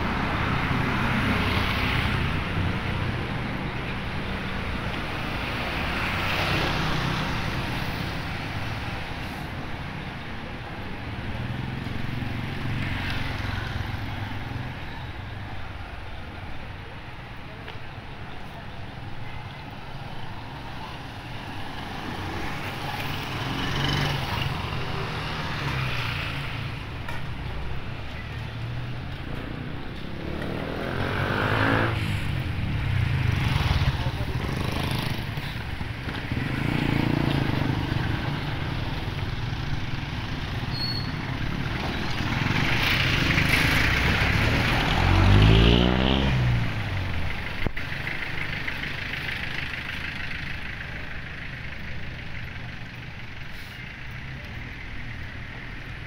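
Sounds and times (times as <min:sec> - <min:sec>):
vehicles passing close by: 0:00.0 - 0:56.0
motorcycles running: 0:20.7 - 0:56.0.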